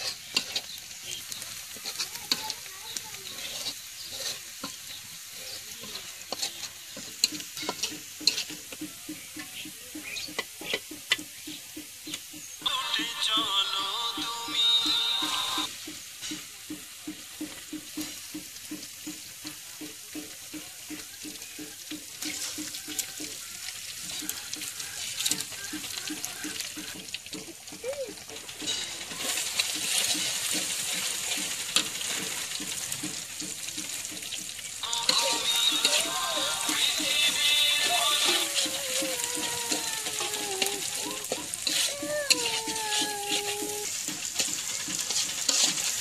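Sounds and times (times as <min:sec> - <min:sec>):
metal spatula scraping pan: 0:00.0 - 0:08.9, 0:28.4 - 0:33.2, 0:34.8 - 0:46.0
eggs sizzling in hot oil: 0:00.0 - 0:46.0.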